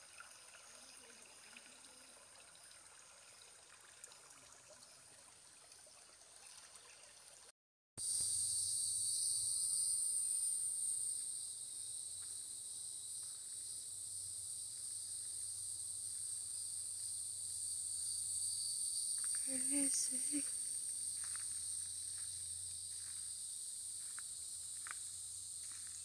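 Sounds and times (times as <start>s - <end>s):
creek trickling over rocks: 0.0s - 7.5s
high-pitched insect chorus: 8.0s - 26.0s.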